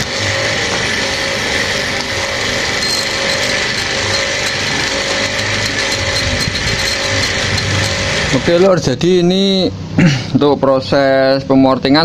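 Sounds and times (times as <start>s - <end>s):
rotary tool grinding metal: 0.0s - 8.8s.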